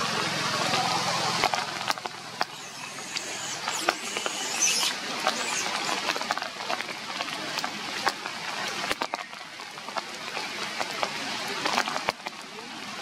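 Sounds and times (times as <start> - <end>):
rain pattering on leaves: 0.0 - 13.0
high-pitched squeaks: 2.4 - 6.4.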